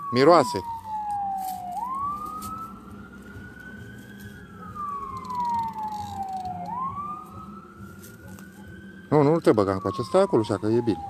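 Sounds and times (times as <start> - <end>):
distant siren wailing: 0.0 - 11.0.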